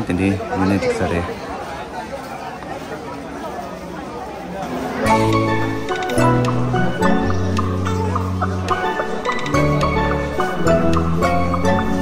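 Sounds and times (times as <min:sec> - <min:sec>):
background music with bass and chords: 0:05.1 - 0:12.0
light percussive ticks: 0:05.9 - 0:06.6.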